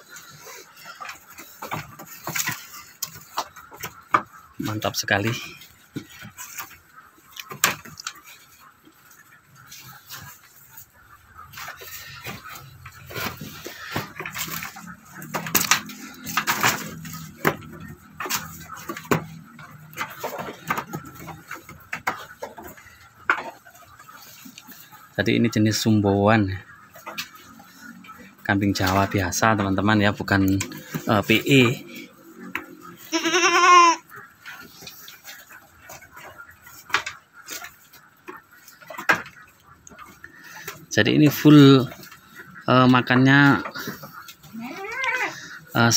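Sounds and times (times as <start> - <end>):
hooves knocking on wooden boards: 0.0 - 45.9
goat bleating: 32.9 - 34.2, 44.4 - 45.5.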